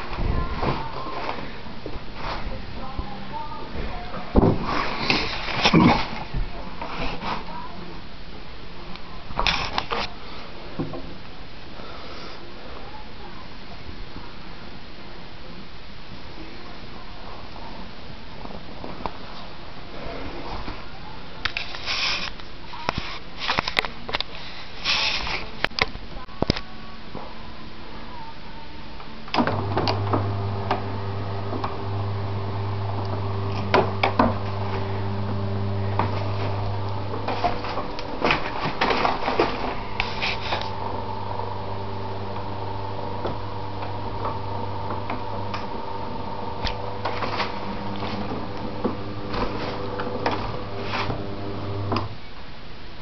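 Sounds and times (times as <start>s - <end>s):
electric motor humming: 29.4s - 52.1s.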